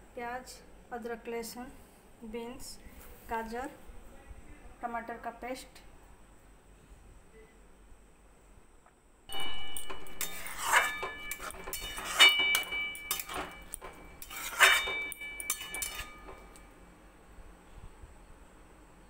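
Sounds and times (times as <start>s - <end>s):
metal spatula scraping pan: 9.3s - 16.6s
spatula clanking on ringing pan: 9.3s - 16.7s.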